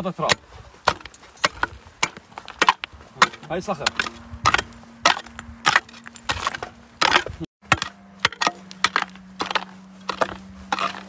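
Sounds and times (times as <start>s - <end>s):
shovel striking stony soil: 0.0s - 11.0s.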